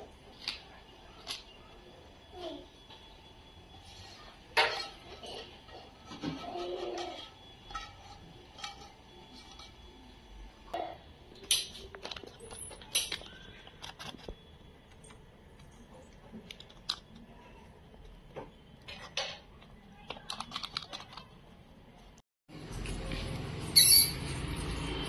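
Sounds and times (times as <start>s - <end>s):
wooden spatula scraping a pan: 3.8s - 10.0s.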